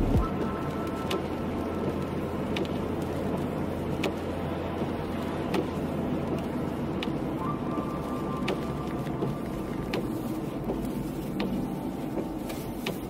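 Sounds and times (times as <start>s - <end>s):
low hum: 0.0s - 1.9s
car engine and tyre noise: 0.0s - 13.0s.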